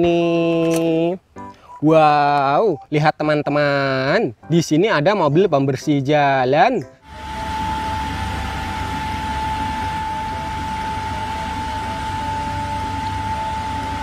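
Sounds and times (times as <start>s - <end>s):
road sweeper running: 7.1s - 14.0s.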